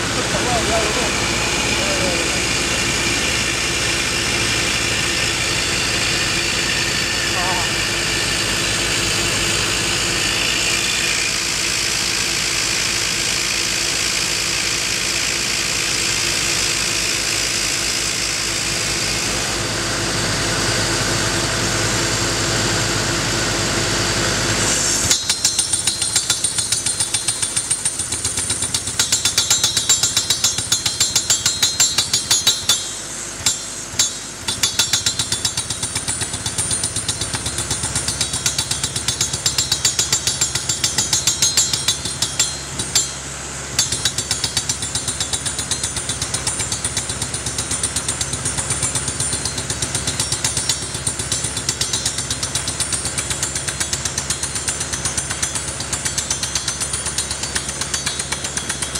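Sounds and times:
drilling rig running: 0:00.0 - 0:58.9
percussive rock hammer hammering: 0:25.1 - 0:58.9.

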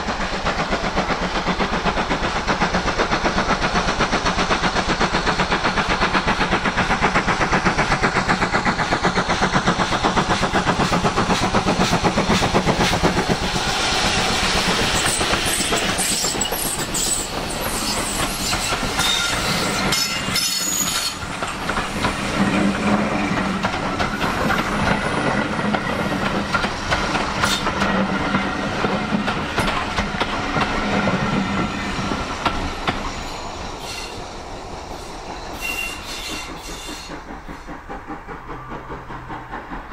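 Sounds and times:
steam locomotive exhaust beats: 0:00.0 - 0:39.9
train wheels clicking over rail joints: 0:00.0 - 0:39.9.

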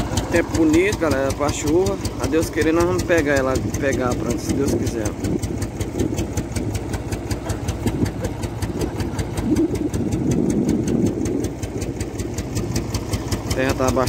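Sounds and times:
tractor engine idling: 0:00.0 - 0:14.0.

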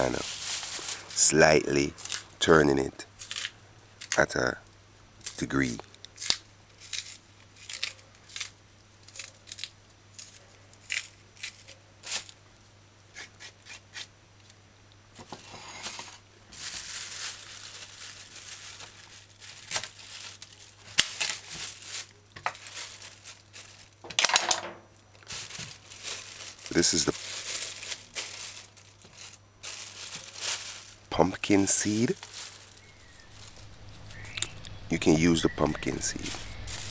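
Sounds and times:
plastic bags rustling: 0:00.0 - 0:04.2, 0:15.2 - 0:36.9.

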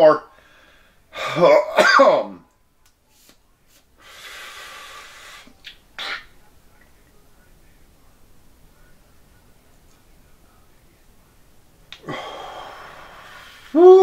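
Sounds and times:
short sharp breaths: 0:00.3 - 0:01.1, 0:04.0 - 0:05.6
inhale through vape pen: 0:04.0 - 0:05.6.

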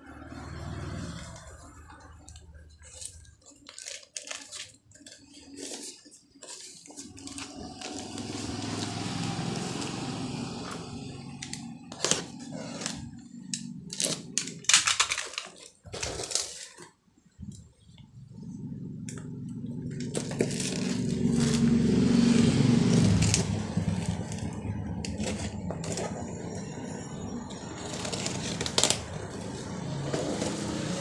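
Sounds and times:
packing tape crinkling: 0:01.2 - 0:10.2, 0:11.1 - 0:17.6, 0:19.9 - 0:21.8, 0:22.9 - 0:26.6, 0:27.8 - 0:31.0
cardboard scraping: 0:02.6 - 0:09.8, 0:11.9 - 0:13.3, 0:15.8 - 0:17.0, 0:19.9 - 0:26.7, 0:27.7 - 0:31.0
tape and cardboard tearing: 0:20.0 - 0:21.9, 0:22.9 - 0:26.3, 0:27.8 - 0:31.0.

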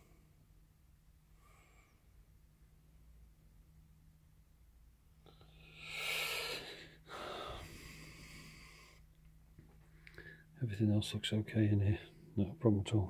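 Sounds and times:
person breathing out heavily: 0:05.5 - 0:09.1.

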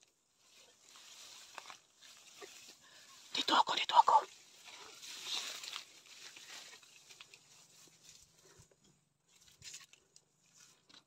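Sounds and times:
dry leaves crackling: 0:00.0 - 0:08.6
leaves and grass rustling: 0:00.0 - 0:11.0.

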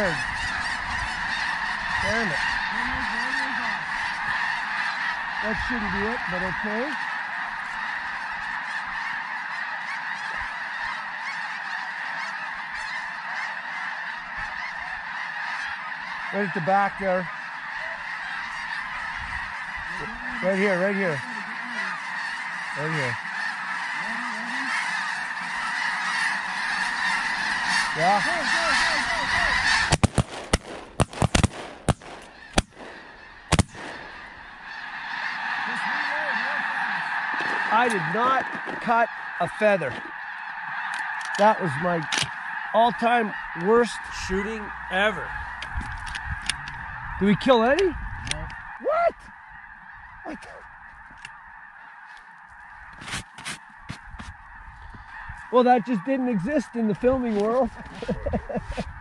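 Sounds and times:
flock of geese calling: 0:00.0 - 0:59.0
shotgun blasts: 0:29.8 - 0:34.3.

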